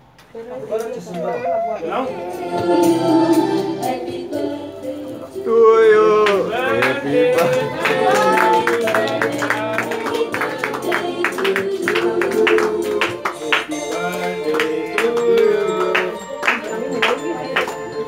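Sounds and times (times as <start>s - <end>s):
person singing: 2.0s - 18.0s
beat of plucked notes: 2.1s - 5.5s.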